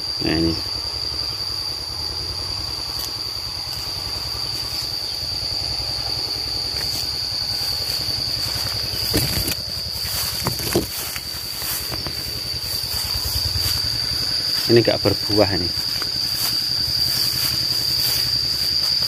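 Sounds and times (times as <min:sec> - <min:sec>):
cicadas droning: 0:00.0 - 0:19.0
low rumble: 0:07.5 - 0:18.7.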